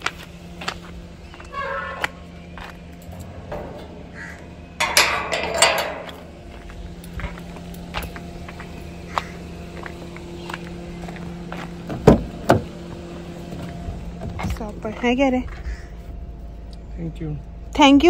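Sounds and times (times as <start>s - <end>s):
crows cawing: 1.3s - 2.7s, 3.8s - 4.8s, 8.9s - 11.0s, 15.5s - 16.2s
metal gate bolt clanking: 3.0s - 7.9s.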